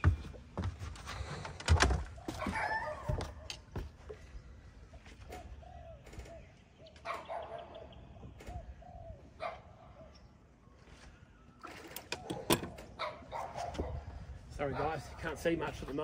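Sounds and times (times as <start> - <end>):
dove cooing: 5.2 - 10.2.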